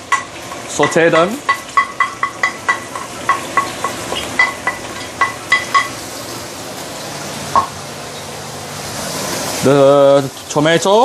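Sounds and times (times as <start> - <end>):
oil sizzling: 0.0 - 11.0
spatula knocking against wok: 0.1 - 6.0.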